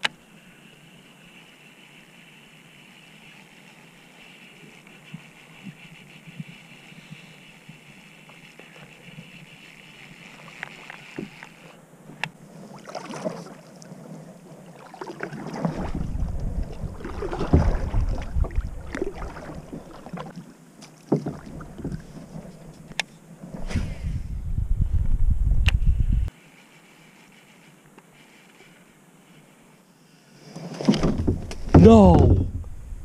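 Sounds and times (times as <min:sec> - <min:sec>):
paddle splashing in water: 0:12.6 - 0:22.7
wind on microphone: 0:15.6 - 0:19.9, 0:23.5 - 0:26.3, 0:31.1 - 0:33.0.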